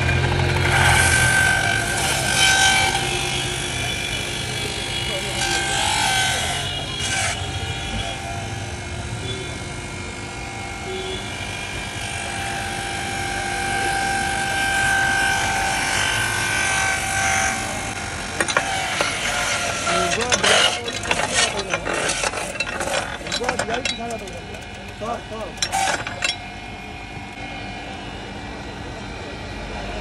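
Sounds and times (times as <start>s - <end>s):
street noise: 0.0s - 30.0s
sharp clicks and rattles: 18.4s - 26.5s.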